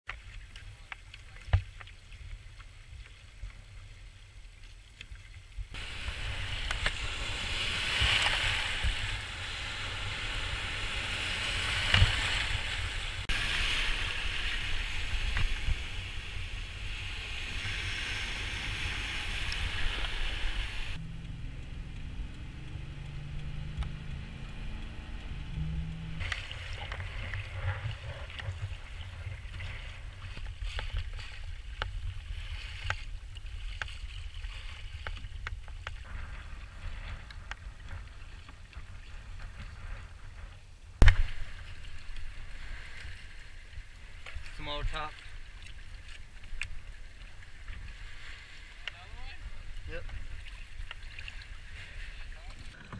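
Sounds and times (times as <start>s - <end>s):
water slapping kayak hull: 0.1s - 21.0s, 23.4s - 52.9s
waves breaking around kayak: 0.1s - 52.9s
wind on microphone: 5.6s - 44.3s
low steady hum: 19.4s - 32.2s.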